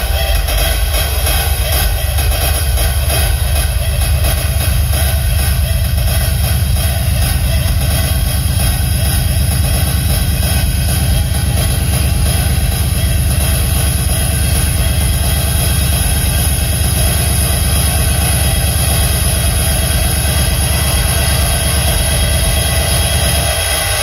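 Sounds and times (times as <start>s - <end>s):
loud techno over sound system: 0.0s - 24.0s.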